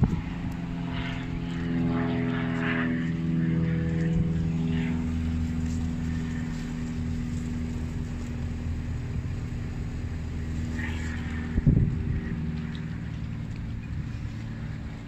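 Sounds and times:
air-conditioner hum: 3.0s - 15.0s.

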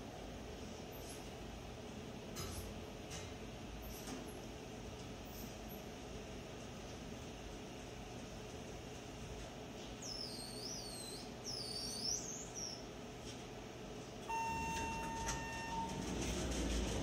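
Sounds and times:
elevator low hum: 0.0s - 17.0s
elevator arrival beep: 14.2s - 17.0s.

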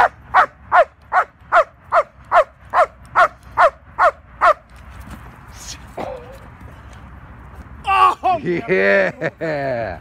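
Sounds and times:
dog barking: 0.0s - 4.6s.

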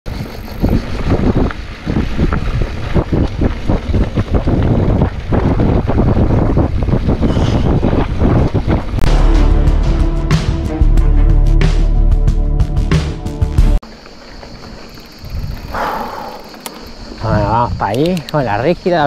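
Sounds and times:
bike rattling over bumps: 0.1s - 9.0s, 13.8s - 18.7s
tyres rolling over dirt and leaves: 0.1s - 9.0s, 13.8s - 15.8s
wind buffeting microphone: 0.1s - 9.1s, 14.7s - 19.0s.

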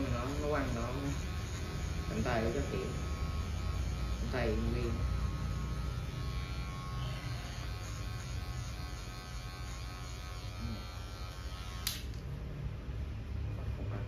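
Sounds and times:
electric hair clippers buzzing: 0.0s - 12.3s
clippers switch click: 11.8s - 12.2s.

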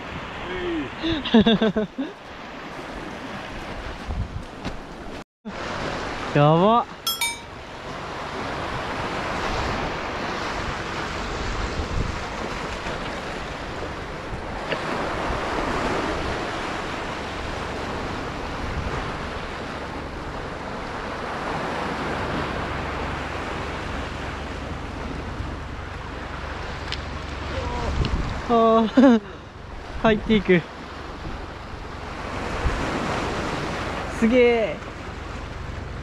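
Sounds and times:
wind buffeting microphone: 2.7s - 5.1s, 8.5s - 28.5s
waves breaking on rocks: 8.0s - 25.2s, 29.8s - 35.6s.

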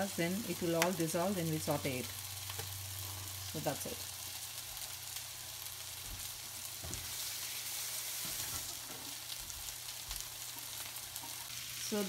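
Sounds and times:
food sizzling in hot oil: 0.0s - 12.0s.

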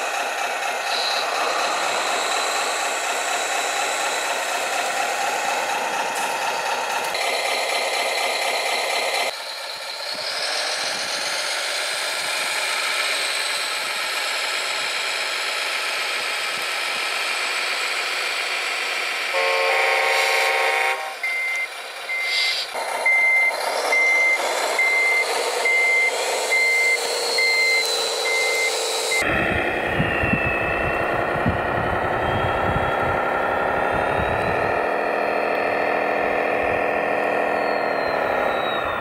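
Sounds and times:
electronic truck engine sound: 0.0s - 39.0s
multi-tone horn: 19.4s - 21.2s
reversing beeper: 19.4s - 39.0s.

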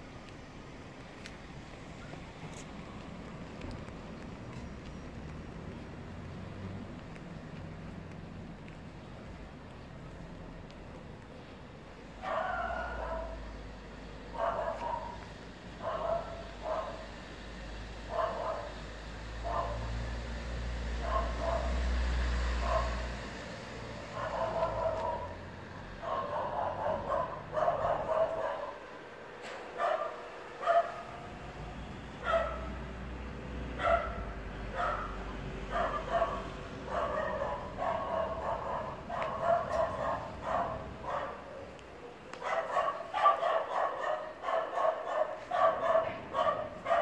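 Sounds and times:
dog barking: 12.2s - 13.5s, 14.3s - 17.1s, 18.1s - 18.8s, 19.4s - 19.9s, 21.0s - 21.9s, 22.6s - 23.2s, 24.0s - 28.9s, 29.7s - 31.3s, 32.2s - 32.7s, 33.8s - 47.0s.

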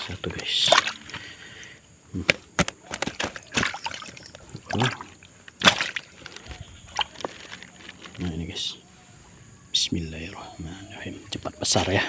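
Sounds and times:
water sloshing in a bag: 0.4s - 1.3s, 2.8s - 8.4s
fish slapping and splashing: 0.6s - 1.2s, 2.6s - 8.0s.

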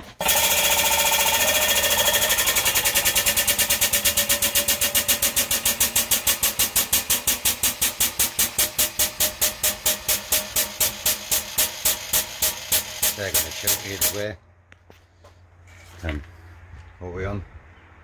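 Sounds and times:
hydraulic press pump pulsing: 0.0s - 14.2s.

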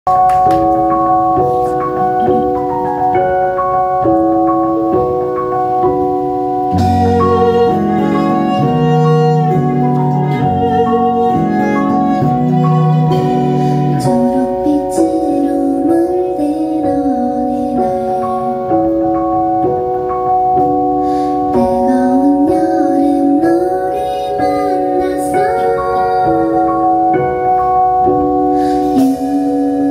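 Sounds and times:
electric keyboard song: 0.0s - 29.9s
woman singing: 13.9s - 19.1s, 21.5s - 27.4s, 28.7s - 29.9s.

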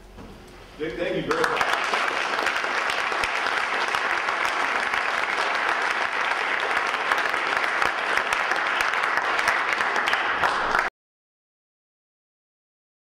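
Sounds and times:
audience applauding: 1.3s - 10.9s.

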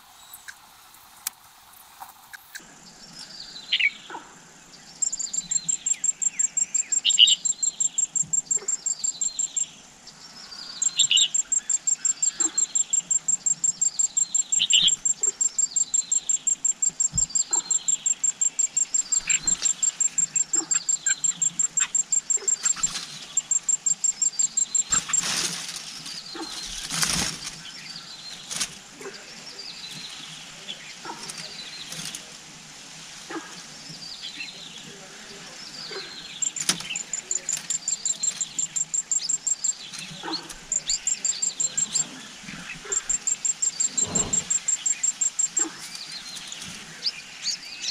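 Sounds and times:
leaf rustling: 0.0s - 4.7s, 17.2s - 47.8s
falling bird calls: 0.0s - 47.9s
insect pulsed trill: 4.9s - 28.7s, 36.1s - 45.7s
wing flutter: 16.9s - 32.6s, 36.4s - 39.1s, 39.9s - 47.0s.

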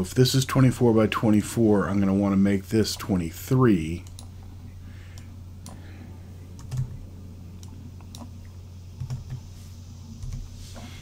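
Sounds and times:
steady low hum: 0.0s - 11.0s
computer keyboard keys clicking: 6.6s - 7.0s.

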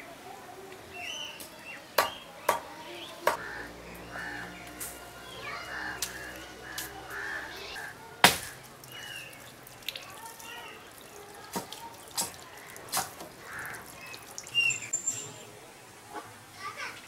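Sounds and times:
crows cawing: 3.3s - 9.3s, 12.6s - 14.2s.

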